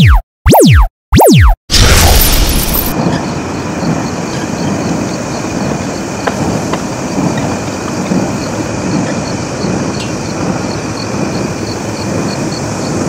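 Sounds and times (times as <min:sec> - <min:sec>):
wheels rolling on rails: 0:02.9 - 0:13.0.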